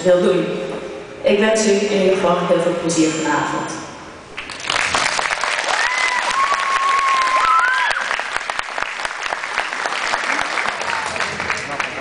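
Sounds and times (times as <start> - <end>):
audience applauding: 4.4 - 12.0.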